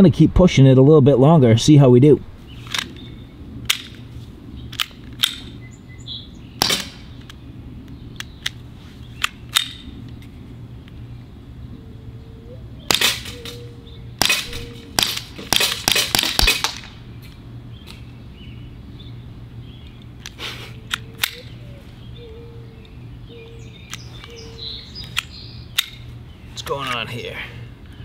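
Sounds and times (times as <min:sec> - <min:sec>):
air pistol shots: 0:06.6 - 0:07.2, 0:12.9 - 0:17.0.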